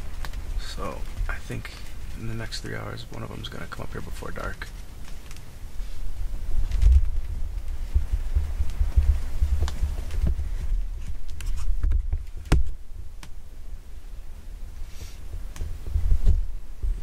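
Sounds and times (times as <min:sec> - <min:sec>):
low rumble: 0:05.9 - 0:11.0.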